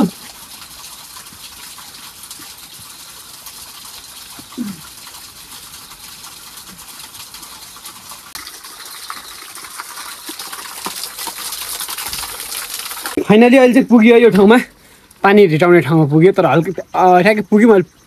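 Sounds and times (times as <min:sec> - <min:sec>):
water splashing onto stones: 0:00.0 - 0:13.2.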